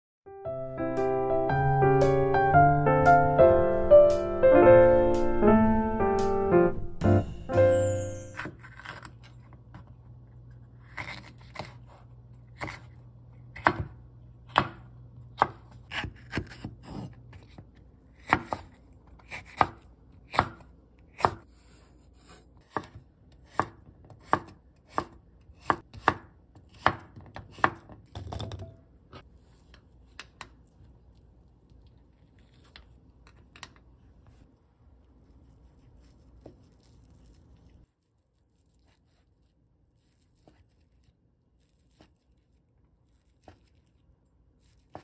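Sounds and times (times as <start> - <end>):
knife chopping on wooden board: 13.6 - 17.6, 18.2 - 21.5, 22.2 - 28.0.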